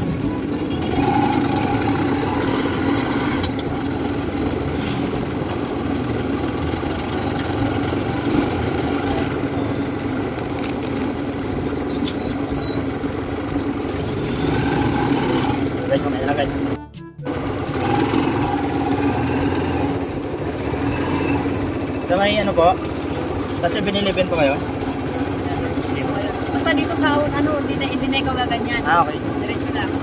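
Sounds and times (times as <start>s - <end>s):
motorcycle engine running: 0.0s - 30.0s.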